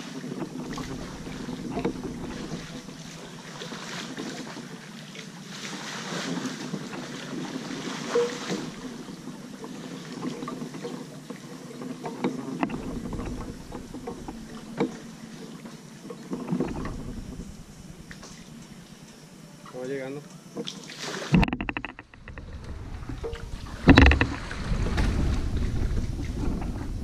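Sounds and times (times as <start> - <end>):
paddle splashing through water: 0.0 - 19.8, 20.6 - 27.0
wind on microphone: 16.6 - 18.9, 21.4 - 27.0
sharp knocks: 21.3 - 22.5, 23.1 - 25.3.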